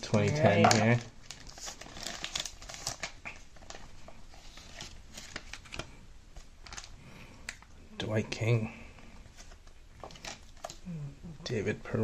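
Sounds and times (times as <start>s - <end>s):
plastic wrapper crinkling: 0.0s - 7.8s, 9.2s - 10.9s.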